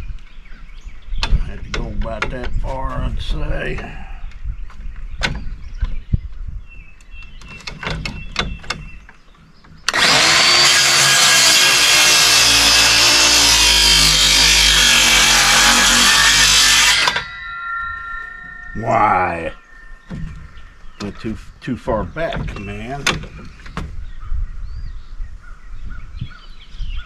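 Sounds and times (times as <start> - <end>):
circular saw cutting wood: 9.9 - 19.8.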